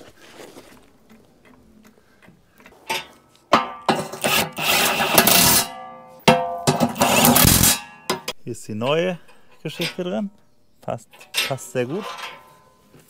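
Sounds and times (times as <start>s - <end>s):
impact wrench bursts: 3.9s - 5.7s, 6.7s - 7.8s.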